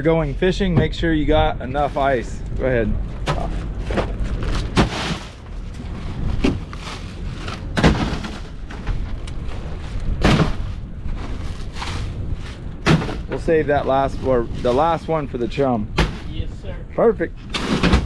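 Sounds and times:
steady low rumble: 0.0s - 18.0s
ice bags landing with thuds: 3.2s - 5.4s, 6.4s - 9.0s, 10.2s - 10.8s, 12.8s - 13.4s, 17.6s - 18.0s.

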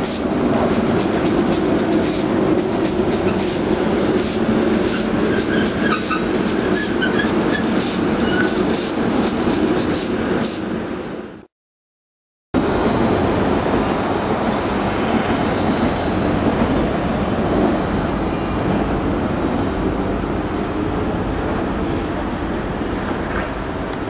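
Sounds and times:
wheels on track: 0.0s - 11.1s
electric locomotive rush and rumble: 0.0s - 11.5s, 12.6s - 24.0s.

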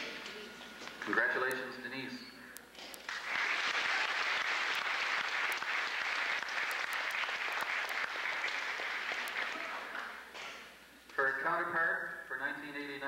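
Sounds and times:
crowd applauding: 3.0s - 10.7s.

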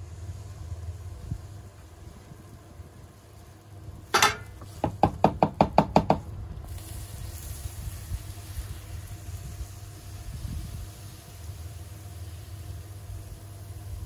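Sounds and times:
metal ladle knocking on metal pot: 4.1s - 6.2s.

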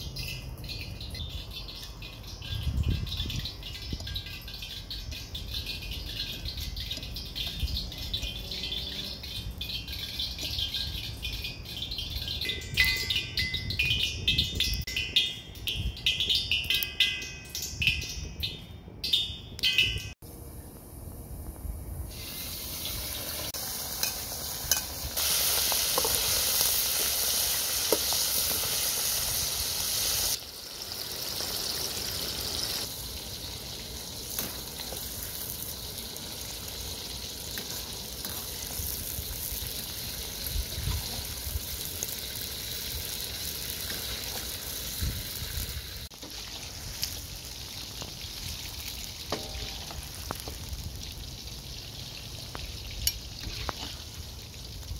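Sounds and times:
food sizzling in a pan: 22.1s - 54.9s.

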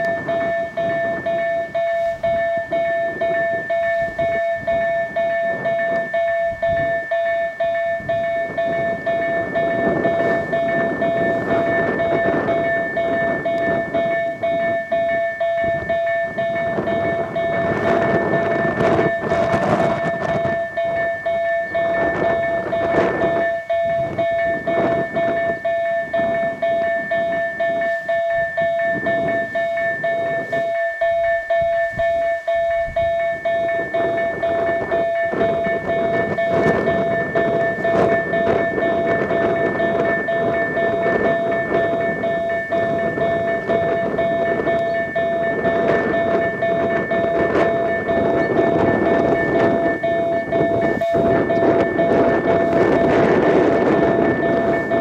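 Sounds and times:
level crossing bell ringing: 0.0s - 55.0s
steady rushing noise: 0.0s - 55.0s.

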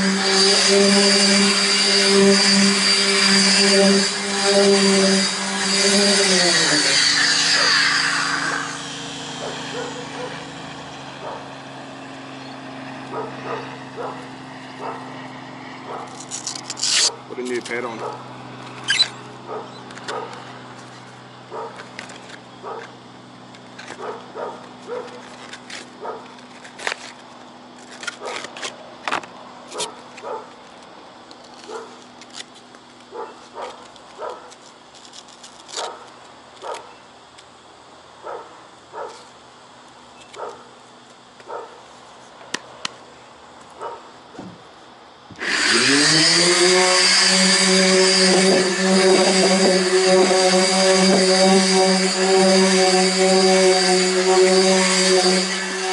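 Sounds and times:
electric sander running: 0.0s - 26.0s, 45.3s - 55.9s
clicks and knocks of handling sander: 19.8s - 37.5s.

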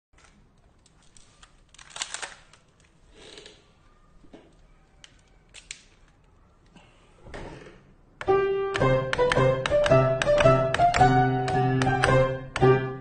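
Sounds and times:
metallic clicks of pistols: 0.2s - 3.6s.

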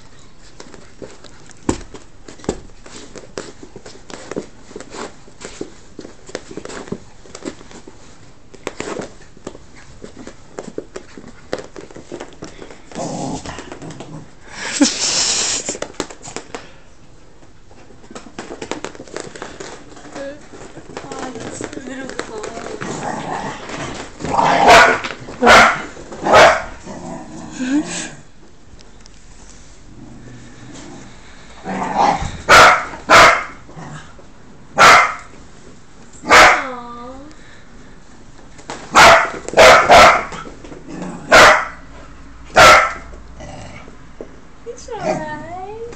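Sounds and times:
dog barking: 24.6s - 26.7s, 32.5s - 33.6s, 34.8s - 35.3s, 36.3s - 36.7s, 38.9s - 40.4s, 41.3s - 41.8s, 42.6s - 43.1s.

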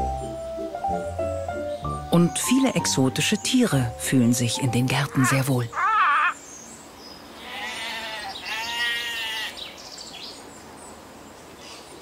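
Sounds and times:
drawn-out animal calls: 5.0s - 6.4s, 7.4s - 9.6s.

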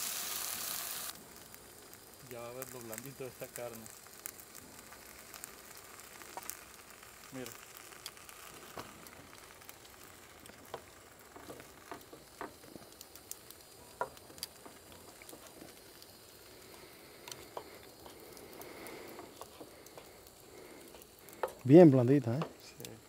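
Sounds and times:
food sizzling in frying pan: 0.0s - 23.0s
sharp pops and crackles: 0.0s - 23.0s.

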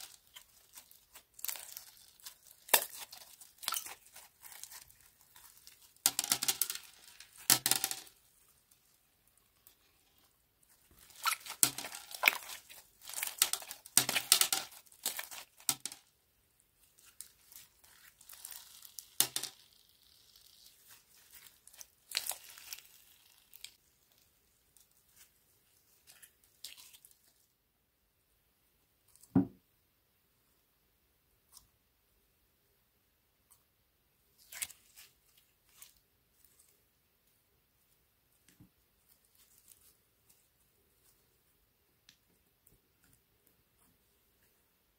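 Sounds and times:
slime crackling and popping: 0.0s - 9.0s, 10.9s - 15.9s, 16.9s - 24.2s.

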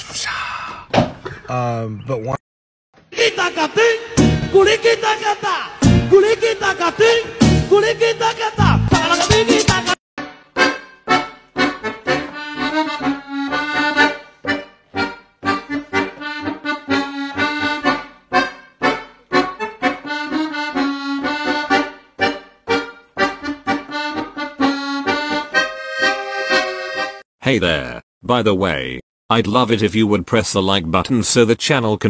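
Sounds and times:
instrumental background music: 5.8s - 7.9s, 8.6s - 27.2s.

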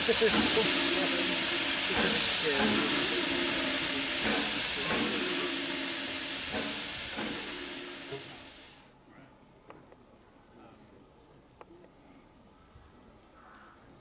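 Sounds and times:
steam locomotive hissing: 0.0s - 8.8s.

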